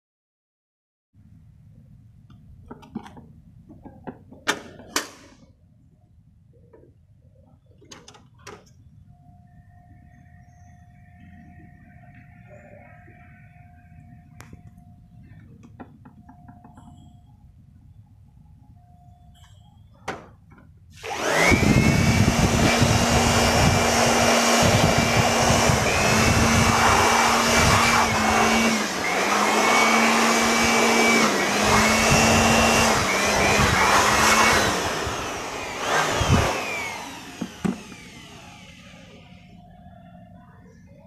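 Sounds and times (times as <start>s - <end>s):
electric air blower running: 20.9s - 39.5s.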